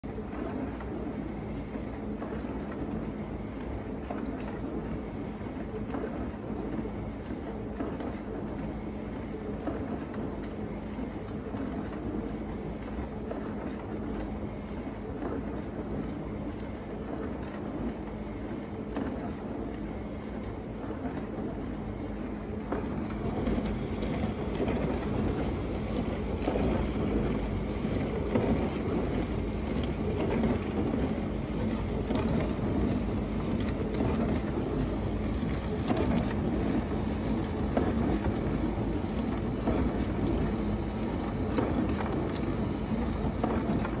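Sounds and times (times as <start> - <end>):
dishwasher motor hum: 0.0 - 44.0
water spraying inside dishwasher: 20.0 - 44.0.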